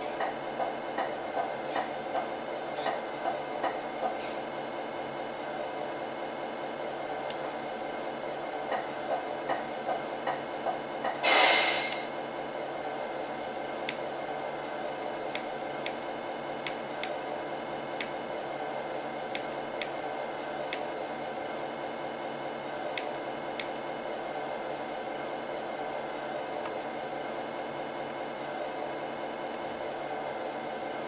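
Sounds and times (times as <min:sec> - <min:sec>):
air hiss burst: 0:11.2 - 0:12.1
sharp clicks: 0:15.0 - 0:17.3, 0:19.3 - 0:20.1, 0:23.0 - 0:23.8.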